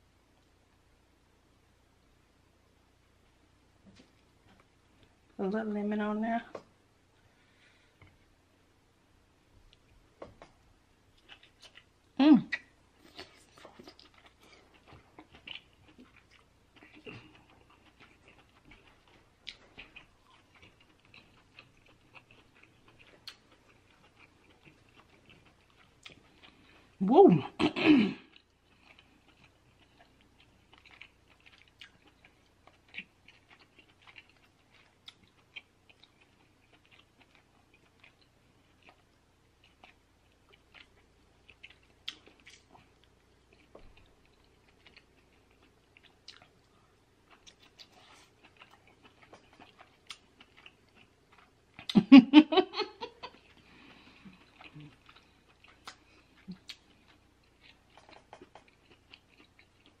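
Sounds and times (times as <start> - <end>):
chewing crab meat: 9.7 - 52.1, 52.8 - 60.0
wet mouth clicks and smacks: 58.0 - 58.8.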